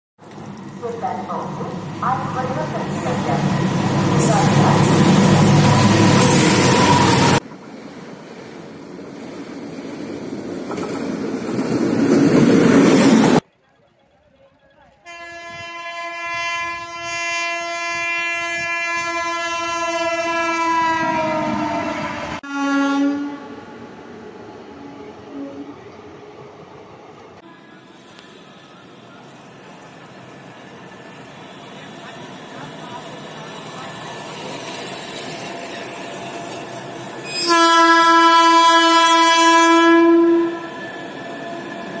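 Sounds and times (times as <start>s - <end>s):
train wheels rumbling: 0.3s - 13.4s, 27.6s - 39.3s
train horn blowing: 15.1s - 23.8s, 24.7s - 25.8s, 37.2s - 41.0s.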